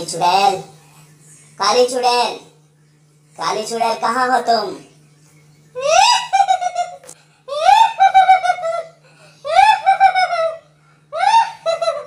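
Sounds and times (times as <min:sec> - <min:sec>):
high-pitched cackling laugh: 0:05.8 - 0:12.0.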